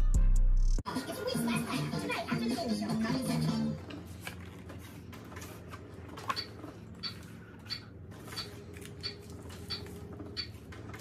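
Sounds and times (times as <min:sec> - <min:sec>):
packaging rustling: 0:03.9 - 0:07.4.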